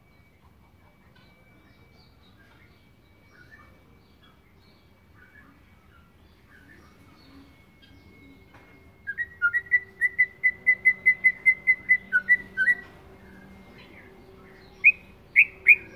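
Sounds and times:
bird whistled song: 1.6s - 15.9s.

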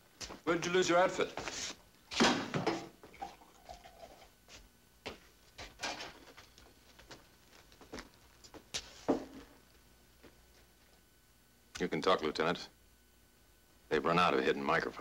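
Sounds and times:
footsteps on hard floor: 4.5s - 9.5s.

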